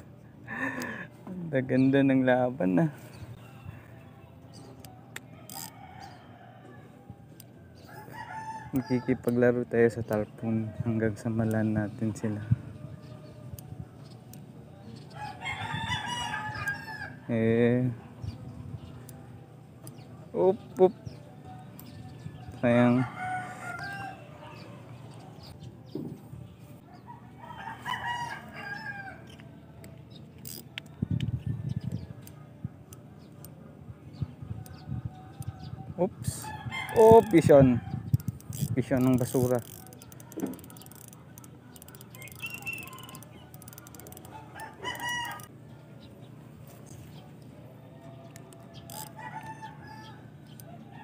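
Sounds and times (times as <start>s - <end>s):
rooster crowing: 15.2s - 17.2s, 23.0s - 24.7s, 26.9s - 29.4s, 42.1s - 45.5s, 48.8s - 51.0s.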